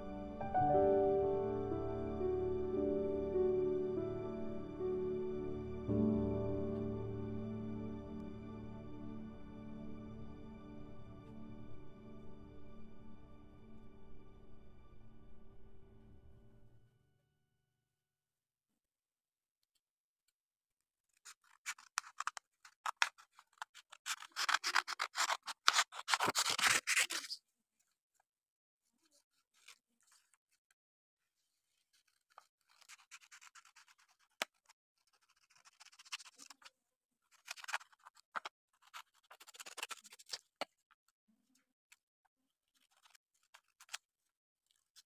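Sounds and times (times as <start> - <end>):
scissors snipping paper: 21.0 - 27.4, 31.7 - 36.7, 37.3 - 40.8, 42.6 - 45.0
paper rustling: 21.1 - 27.4, 29.0 - 30.6, 31.3 - 40.8, 42.6 - 45.0.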